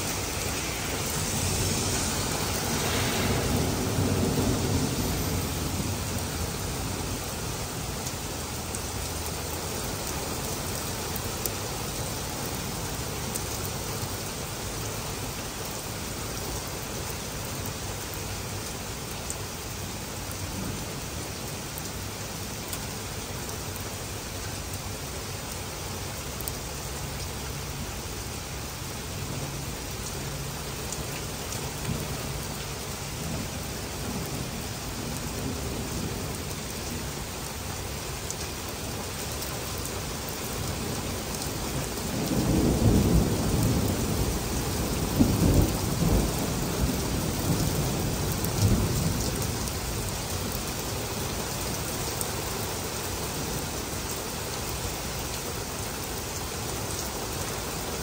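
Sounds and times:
thunder rumbling: 0:00.0 - 0:08.0, 0:41.6 - 0:50.1
heavy rain: 0:00.0 - 0:58.0.

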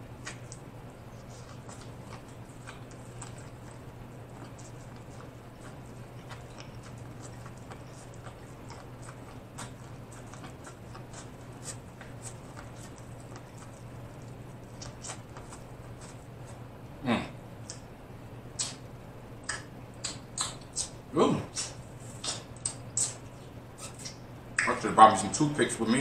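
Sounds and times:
biting and chewing corn on the cob: 0:00.0 - 0:16.7
steady low hum: 0:00.0 - 0:26.0.

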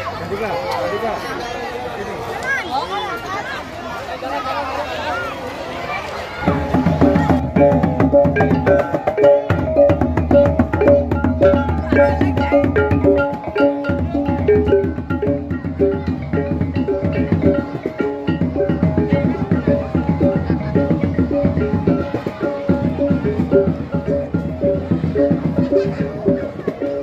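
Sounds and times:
hand drums: 0:06.4 - 0:27.0.

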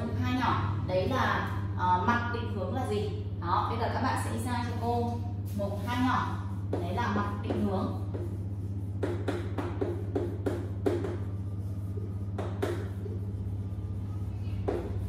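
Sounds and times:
steady low hum: 0:00.0 - 0:15.0
chalk tapping and scratching: 0:05.5 - 0:15.0.

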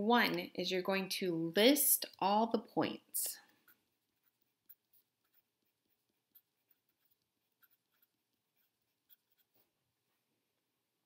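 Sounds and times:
pen scratching on paper: 0:03.6 - 0:09.7.

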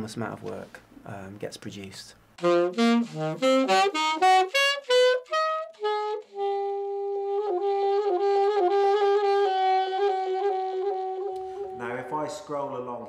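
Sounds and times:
solo saxophone: 0:02.4 - 0:11.9.

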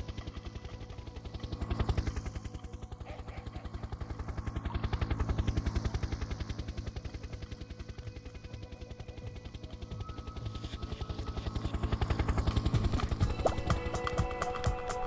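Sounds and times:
rapid pulsing chopping sound: 0:12.0 - 0:15.0.

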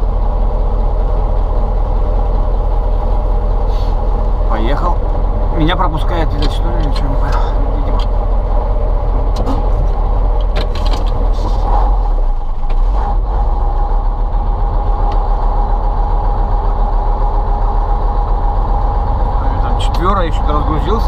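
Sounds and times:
diesel engine droning: 0:00.0 - 0:21.0.

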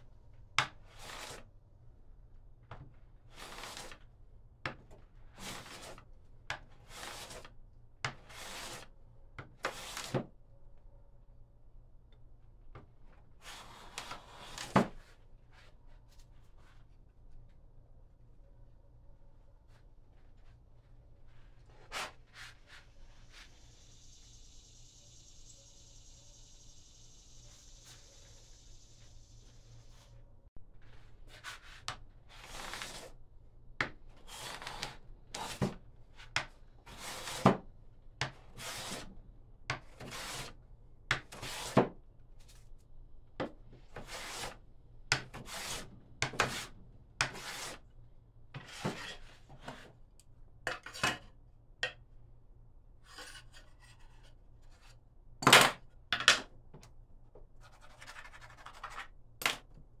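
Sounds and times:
hand tool scraping wood: 0:44.0 - 0:44.6, 0:45.4 - 0:47.8.

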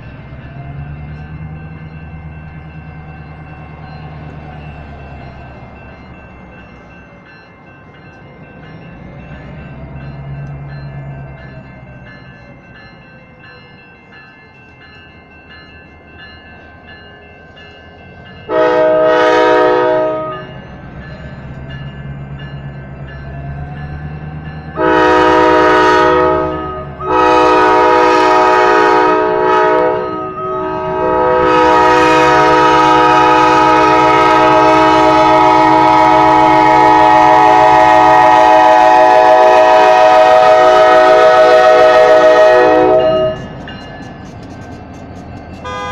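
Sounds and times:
crossing signal bell ringing: 0:00.0 - 0:45.9
locomotive rumble: 0:00.0 - 0:45.9
locomotive air horn blasts: 0:18.5 - 0:20.5, 0:24.8 - 0:43.4, 0:45.6 - 0:45.9.

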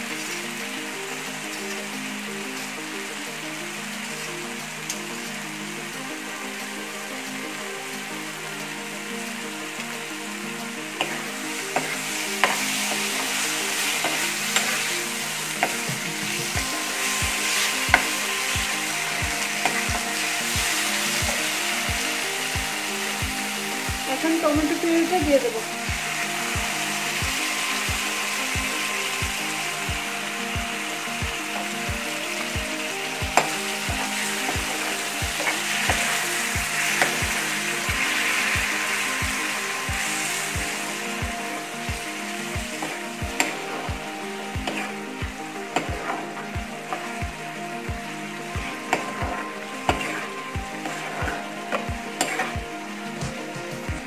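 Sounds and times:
masala sizzling in oil: 0:00.0 - 0:54.0.

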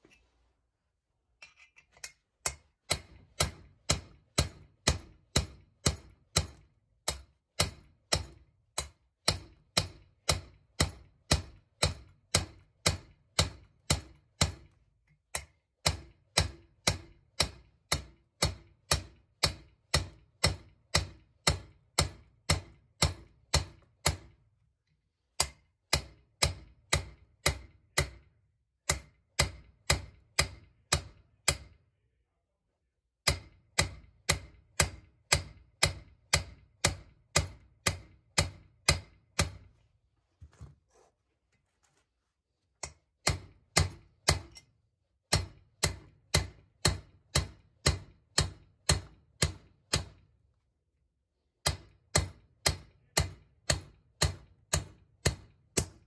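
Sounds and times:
hammer striking steel punch: 0:02.4 - 0:24.4, 0:25.4 - 0:31.8, 0:33.2 - 0:39.7, 0:42.8 - 0:44.7, 0:45.3 - 0:50.3, 0:51.6 - 0:56.0.

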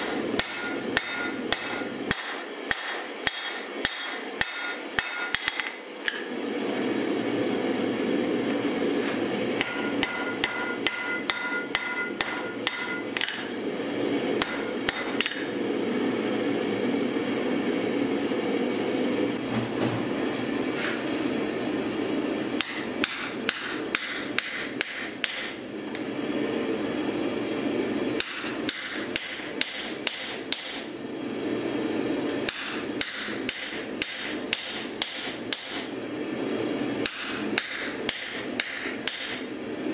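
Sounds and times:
hammer ringing on anvil: 0:00.0 - 0:05.6, 0:09.6 - 0:13.4.

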